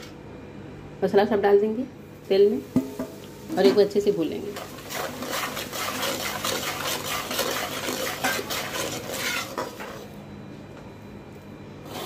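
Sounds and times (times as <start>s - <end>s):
oil sizzling: 2.6s - 10.0s
metal ladle scraping a pan: 4.6s - 10.0s.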